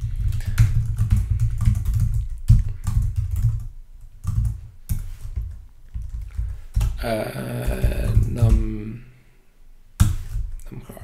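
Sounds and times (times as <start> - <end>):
typing on computer keyboard: 0.0 - 7.0.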